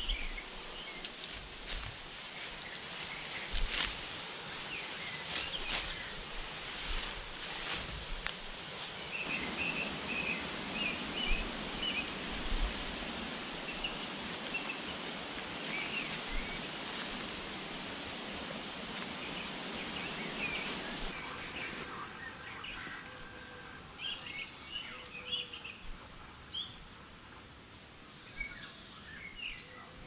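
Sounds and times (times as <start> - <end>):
small birds chirping: 0.0 - 12.2, 13.0 - 17.2
rustling of grass and undergrowth: 0.0 - 28.6.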